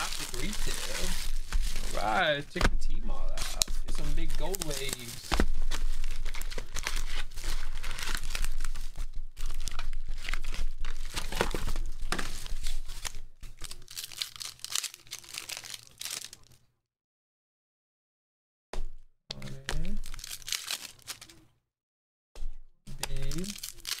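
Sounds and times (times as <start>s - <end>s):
foil wrappers crinkling and tearing: 0.0s - 2.4s, 3.3s - 16.6s, 19.8s - 21.4s, 23.0s - 24.0s.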